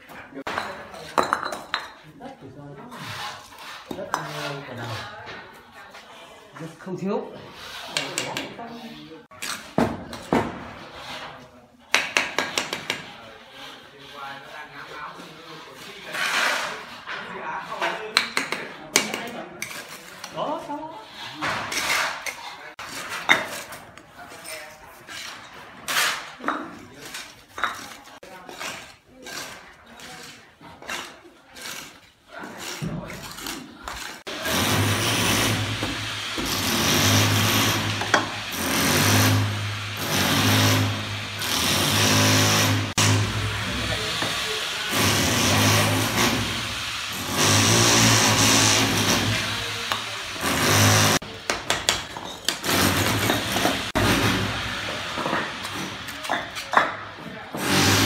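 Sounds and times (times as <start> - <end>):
trowel scraping mortar: 2.6 - 58.0
bricks knocked into mortar: 51.4 - 54.5.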